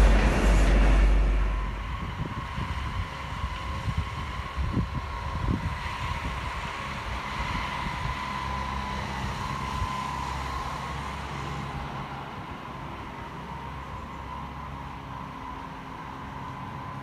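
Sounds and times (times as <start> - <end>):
wind buffeting microphone: 0.0 - 12.4
distant train whine: 0.0 - 17.0.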